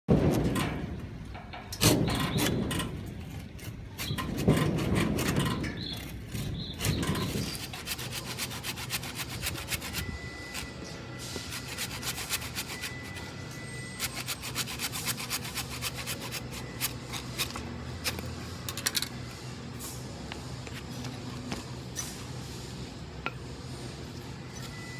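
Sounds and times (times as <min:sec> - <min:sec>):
hand saw cutting branch: 0:06.3 - 0:10.6, 0:11.5 - 0:13.2, 0:14.0 - 0:18.3.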